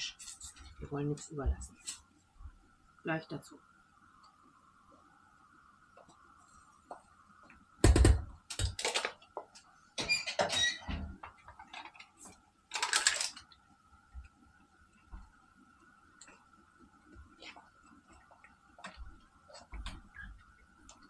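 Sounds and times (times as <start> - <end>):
squeak: 10.0 - 11.0.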